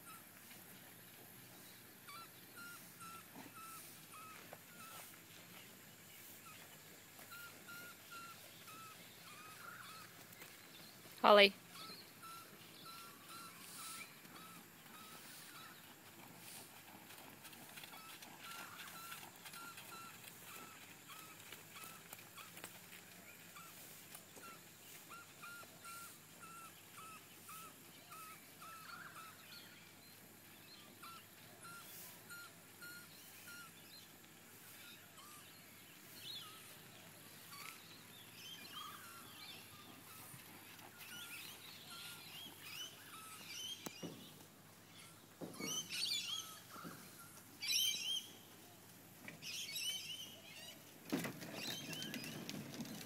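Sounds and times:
higher birdsong: 0:01.5 - 0:16.5, 0:23.2 - 0:48.8.

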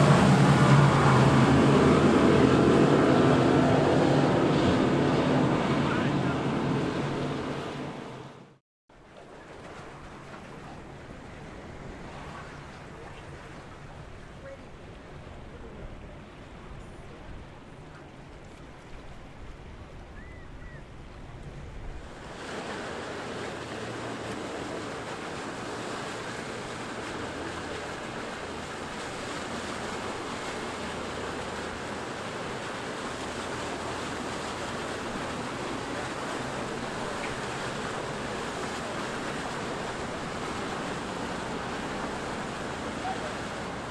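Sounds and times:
low engine drone: 0:00.0 - 0:08.6, 0:22.2 - 0:43.9
boat wake rushing water: 0:00.0 - 0:43.9
waves washing: 0:00.0 - 0:43.9
wind: 0:00.0 - 0:43.9.

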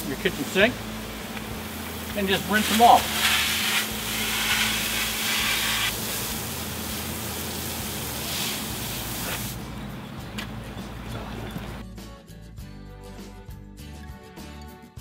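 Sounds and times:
water spraying from hose: 0:00.0 - 0:09.8.

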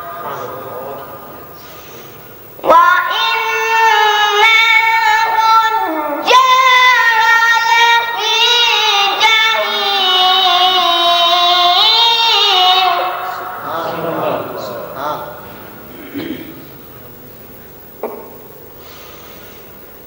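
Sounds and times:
boy reciting melodically: 0:00.0 - 0:16.5
boy breathing: 0:18.8 - 0:19.9.

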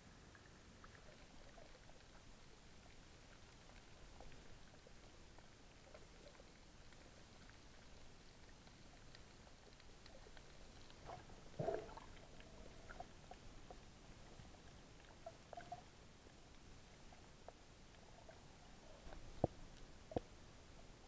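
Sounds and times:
underwater ticks and crackles: 0:00.1 - 0:21.0
muffled underwater burst: 0:11.1 - 0:12.3.

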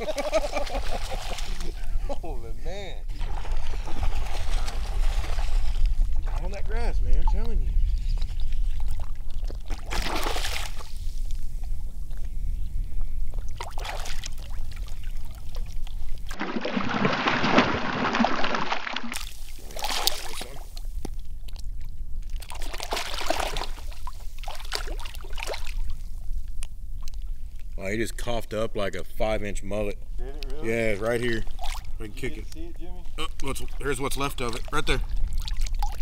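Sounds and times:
fish splashing in water: 0:08.6 - 0:11.2, 0:13.5 - 0:20.8, 0:22.3 - 0:26.2, 0:31.4 - 0:31.9.

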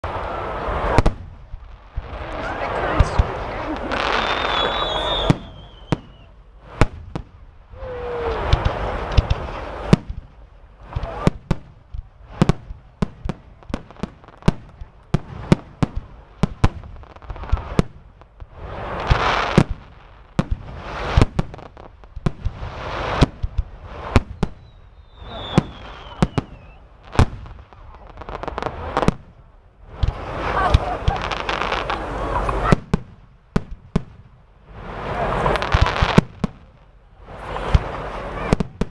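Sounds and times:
fireworks bangs: 0:00.0 - 0:38.9
fireworks hiss: 0:00.1 - 0:11.6, 0:12.2 - 0:29.2, 0:34.6 - 0:38.9
falling firework whistle: 0:03.9 - 0:06.4, 0:07.7 - 0:09.4, 0:24.1 - 0:26.9.

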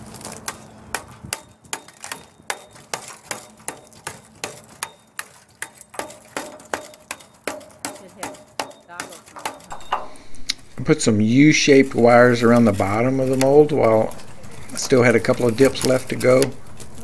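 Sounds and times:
hammer striking ceramic mold: 0:00.5 - 0:10.2.

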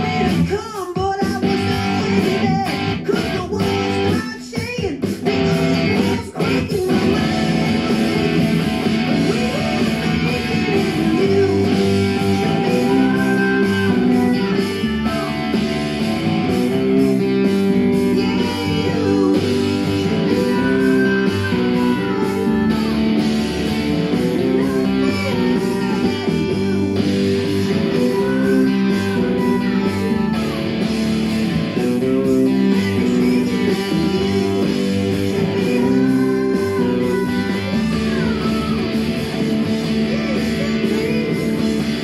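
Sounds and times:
electric guitar melody with bends: 0:00.0 - 0:00.5, 0:01.4 - 0:04.2, 0:05.2 - 0:42.0.

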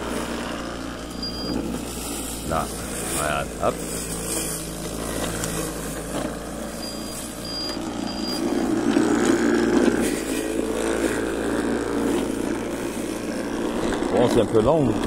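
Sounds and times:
electric mower motor hum: 0:00.0 - 0:15.0
short high beeps: 0:01.1 - 0:01.6, 0:06.8 - 0:08.5.

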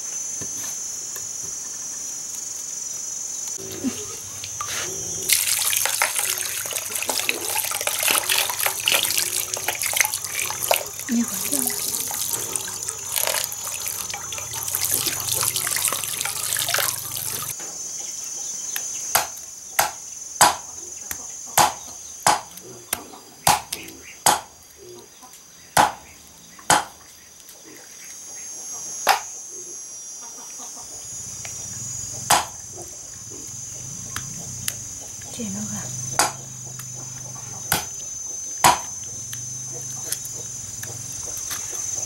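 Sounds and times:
hands sloshing in water: 0:05.3 - 0:17.5
cleaver chopping on wooden block: 0:19.2 - 0:20.6, 0:21.6 - 0:22.5, 0:23.5 - 0:24.5, 0:25.8 - 0:26.0, 0:26.7 - 0:26.9, 0:36.2 - 0:36.4, 0:38.6 - 0:38.8.

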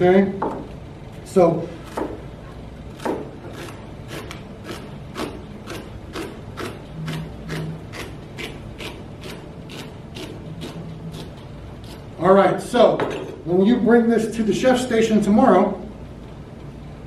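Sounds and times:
knife chopping on plastic board: 0:01.9 - 0:02.2, 0:03.0 - 0:04.4.

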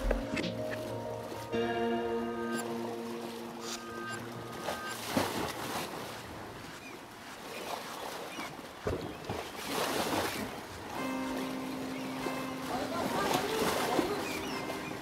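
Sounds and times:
held musical chord: 0:00.0 - 0:04.8, 0:10.9 - 0:15.0
water-like noise surges: 0:00.0 - 0:15.0.

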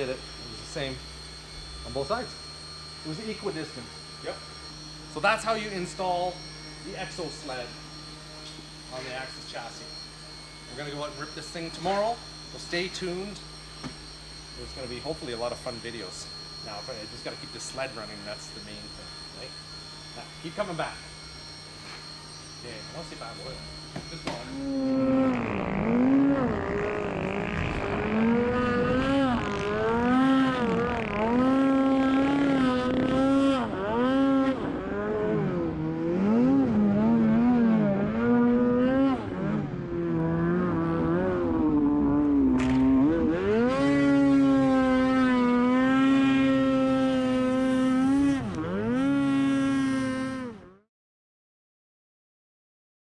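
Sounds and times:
snowmobile engine revving: 0:00.0 - 0:07.9, 0:22.6 - 0:50.8.

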